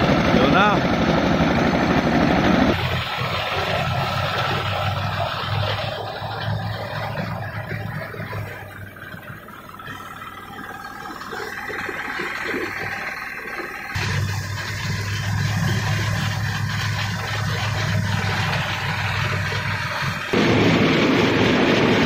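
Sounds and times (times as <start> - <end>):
engine drone: 0.0 - 22.0
threshing drum working: 0.0 - 22.0.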